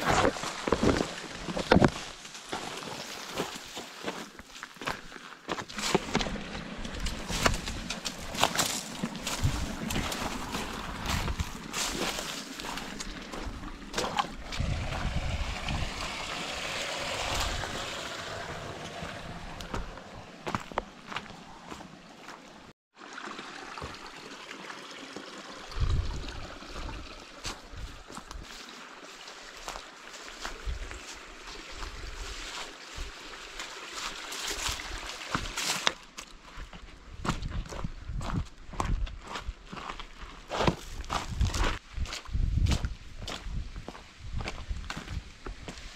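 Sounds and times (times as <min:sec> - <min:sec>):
footsteps on gravel: 0:00.0 - 0:15.0, 0:17.2 - 0:22.7, 0:34.0 - 0:45.9
trickling creek: 0:00.0 - 0:45.9
wind on microphone: 0:09.2 - 0:12.0, 0:12.6 - 0:20.6, 0:25.7 - 0:28.4, 0:37.1 - 0:39.4, 0:41.1 - 0:45.9.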